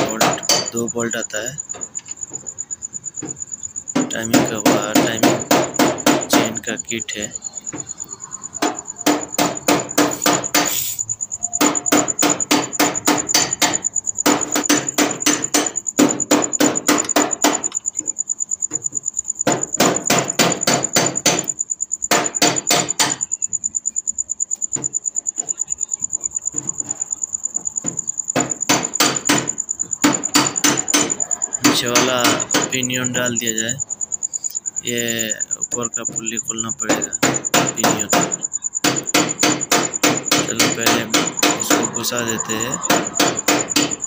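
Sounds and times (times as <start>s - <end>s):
hammer striking metal: 0.0s - 0.8s, 4.0s - 7.8s, 8.6s - 17.8s, 28.4s - 33.2s, 36.8s - 44.0s
high-pitched whine: 40.6s - 44.0s.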